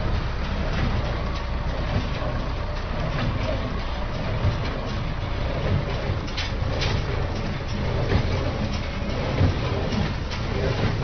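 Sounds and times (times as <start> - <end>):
hay baler clatter: 0.0 - 11.0
tractor engine running: 0.0 - 11.0.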